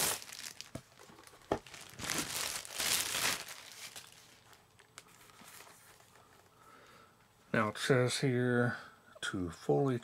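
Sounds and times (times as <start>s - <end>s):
packaging crinkling and rustling: 0.0s - 6.2s.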